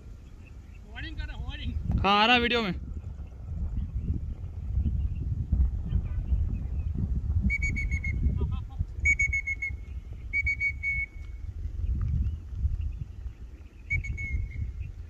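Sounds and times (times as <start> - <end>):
wind rumble on microphone: 0.0 - 15.0
kestrel calling: 7.5 - 8.3, 9.0 - 11.4, 13.6 - 15.0.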